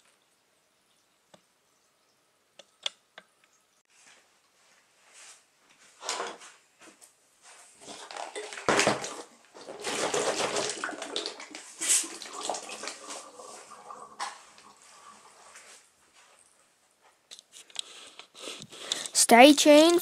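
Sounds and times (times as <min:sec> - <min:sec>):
water swishing in plastic bottles: 0:07.6 - 0:16.4.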